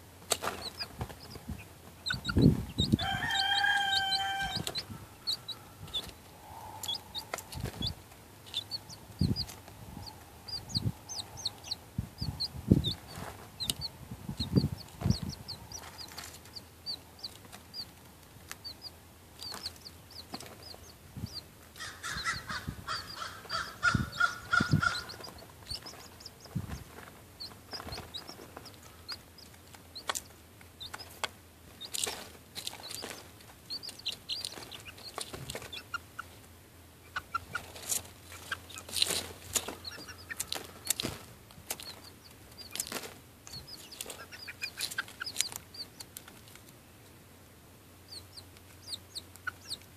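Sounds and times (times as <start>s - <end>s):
hen clucking: 0.0s - 46.4s, 48.0s - 49.9s
chickens pecking taps: 0.2s - 6.2s, 6.8s - 10.3s, 17.2s - 20.9s, 21.7s - 36.4s, 37.1s - 47.1s
chick peeping: 0.2s - 46.8s, 48.0s - 49.9s.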